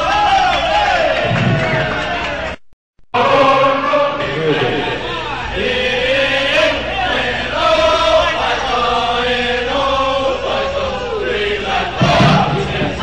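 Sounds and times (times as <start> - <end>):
men singing in chorus: 5.6 - 13.0.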